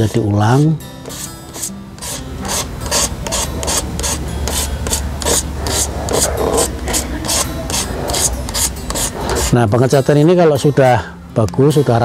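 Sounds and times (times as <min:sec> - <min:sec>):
sandpaper rasping on plastic: 0:01.1 - 0:09.6.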